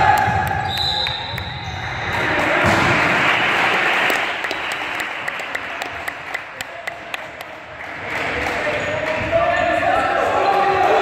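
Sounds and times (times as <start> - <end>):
people clapping: 2.1 - 9.3.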